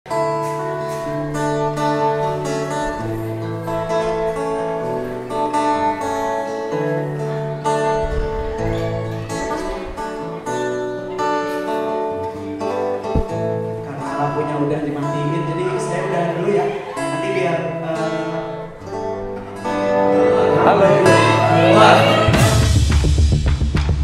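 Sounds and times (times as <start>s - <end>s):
acoustic guitar strummed and picked: 0.1s - 23.2s.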